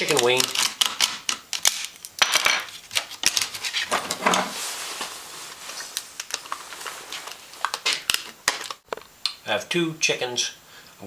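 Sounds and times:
scraping rustle: 0:03.4 - 0:08.0.

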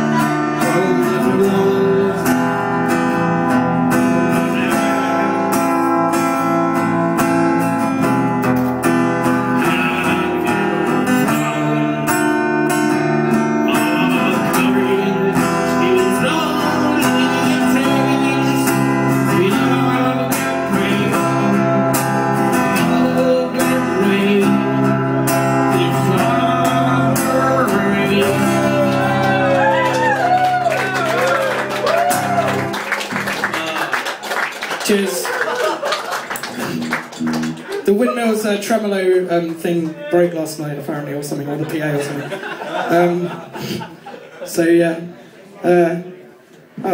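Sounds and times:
person singing: 0:00.0 - 0:02.8, 0:04.1 - 0:05.7, 0:09.3 - 0:12.6, 0:13.6 - 0:31.2
live band playing: 0:00.0 - 0:04.2
harmonica: 0:09.2 - 0:23.0.

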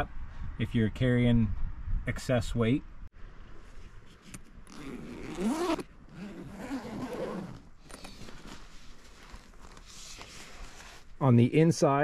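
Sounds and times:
zipper rasping open: 0:04.1 - 0:11.1.

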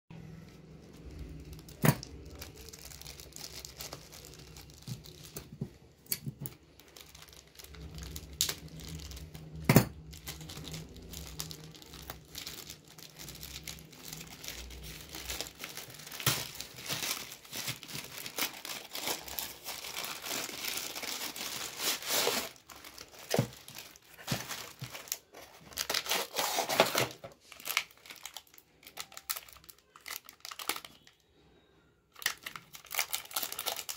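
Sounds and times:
low steady hum: 0:00.1 - 0:27.3
plastic packaging crinkling: 0:00.2 - 0:31.4, 0:32.1 - 0:33.9.

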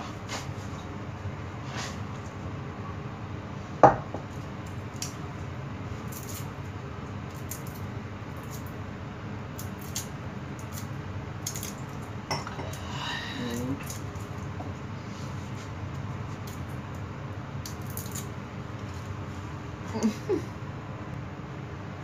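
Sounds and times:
steady low hum: 0:00.0 - 0:22.0
garlic skins crackling: 0:05.9 - 0:08.8, 0:09.5 - 0:12.1, 0:17.6 - 0:19.2.

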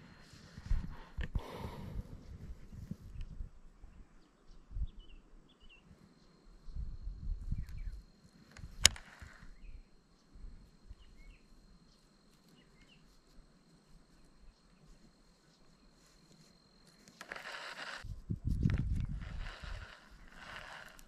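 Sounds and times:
faint high whine: 0:00.0 - 0:21.0
bird chirps: 0:09.5 - 0:13.2.

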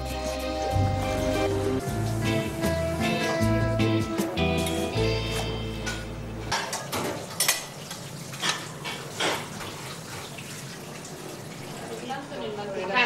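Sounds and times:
dishes and cutlery clinking: 0:04.6 - 0:09.8.

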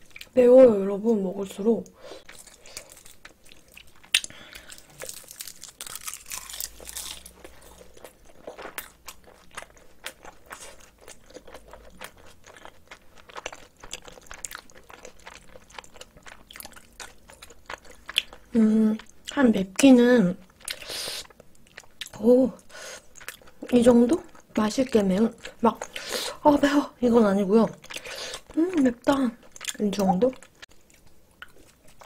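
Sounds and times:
close chewing with wet mouth smacks: 0:07.1 - 0:19.4, 0:23.0 - 0:24.5.

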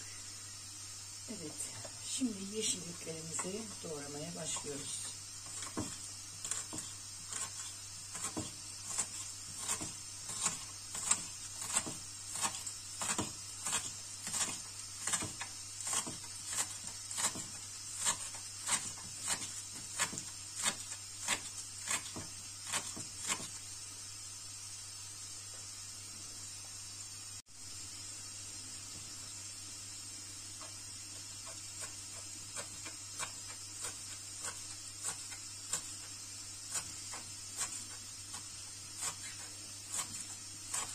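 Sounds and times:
steady background hiss: 0:00.0 - 0:40.9
knife chopping on wooden board: 0:05.4 - 0:23.6.

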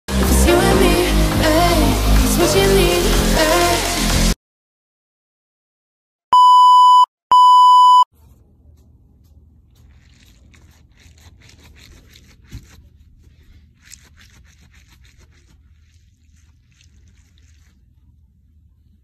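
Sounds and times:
stress ball crackling and rubbing: 0:08.1 - 0:18.1.

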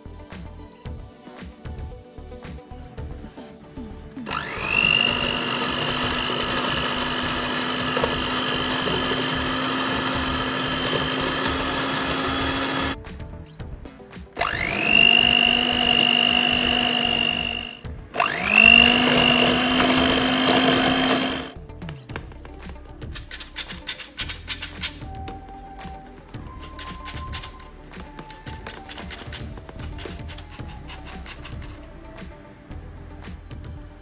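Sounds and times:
electric hand mixer whirring: 0:04.3 - 0:13.0, 0:14.4 - 0:21.6.

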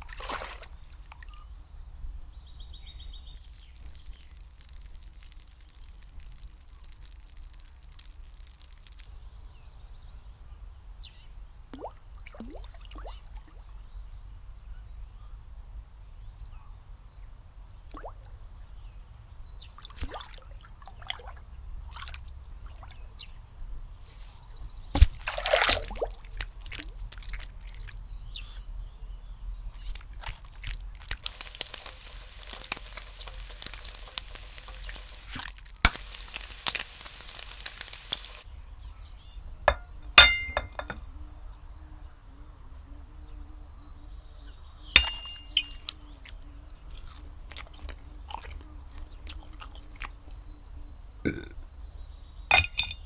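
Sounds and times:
loud splash: 0:00.0 - 0:00.8, 0:25.0 - 0:26.2
small water drips and plops: 0:00.0 - 0:01.5, 0:02.8 - 0:09.2, 0:11.7 - 0:13.9, 0:17.8 - 0:18.4, 0:19.7 - 0:23.2, 0:25.0 - 0:28.6, 0:29.7 - 0:38.5, 0:45.0 - 0:50.5.

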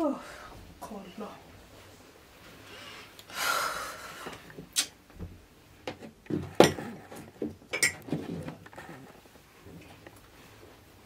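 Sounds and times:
mugs knocking and clinking: 0:05.9 - 0:08.6.

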